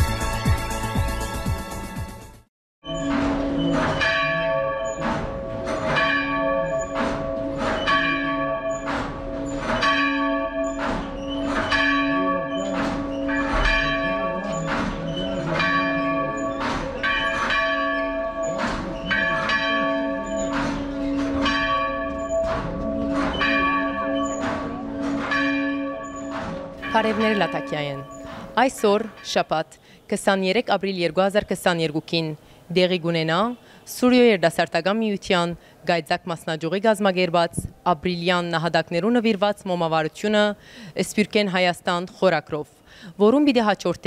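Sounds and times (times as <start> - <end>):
church bell ringing: 2.9 - 29.5.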